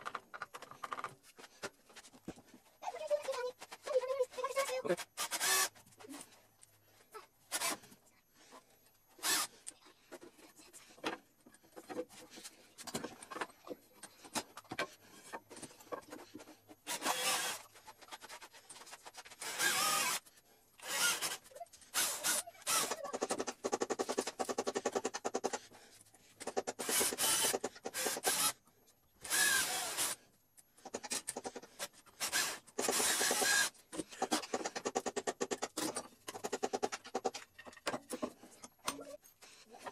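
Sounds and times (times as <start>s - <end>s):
cordless drill boring wood: 4.9s - 5.7s, 7.5s - 7.8s, 9.2s - 9.5s, 16.9s - 17.7s, 19.4s - 20.2s, 20.8s - 23.9s, 26.6s - 28.6s, 29.2s - 30.2s, 32.2s - 35.5s.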